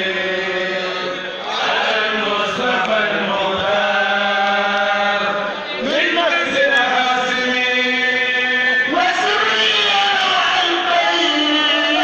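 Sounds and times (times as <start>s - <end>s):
religious chanting voices: 0.0s - 12.0s.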